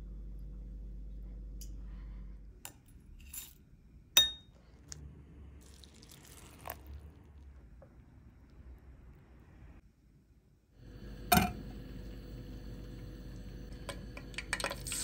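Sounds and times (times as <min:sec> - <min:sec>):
low steady hum: 0:00.0 - 0:15.0.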